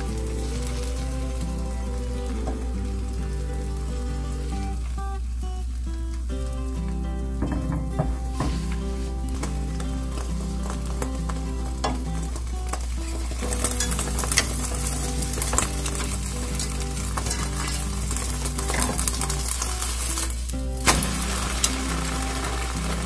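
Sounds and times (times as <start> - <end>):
egg sizzling in a wok: 0.0 - 23.0
chopsticks scraping and clicking on pan: 11.8 - 20.5.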